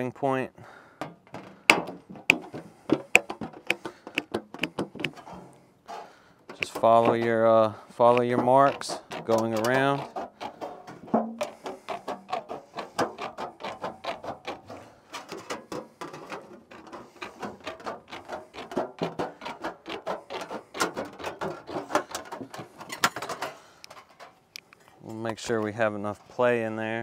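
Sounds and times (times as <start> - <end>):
metal snips cutting sheet metal: 8.1 - 10.1.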